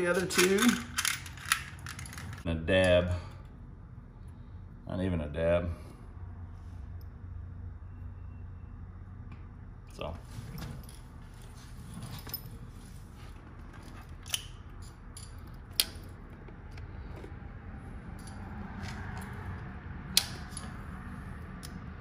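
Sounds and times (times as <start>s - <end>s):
metal bolt and key clinking: 0.0s - 2.4s, 13.7s - 16.2s, 18.1s - 19.4s, 20.1s - 20.9s.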